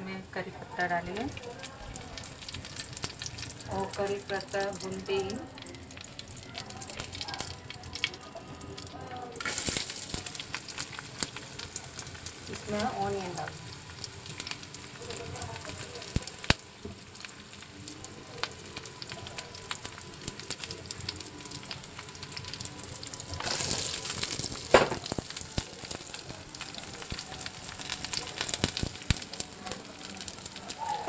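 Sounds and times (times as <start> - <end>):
onions sizzling in hot oil: 0.0 - 31.0
sharp pops: 23.4 - 26.4.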